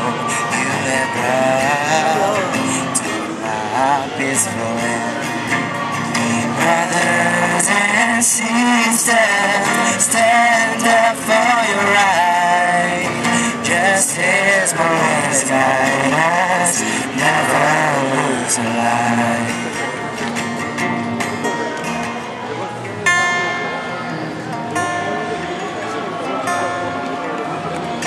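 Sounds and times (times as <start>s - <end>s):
man singing into a microphone: 0.0s - 20.2s
acoustic guitar: 0.0s - 28.0s
women singing along: 6.1s - 19.5s.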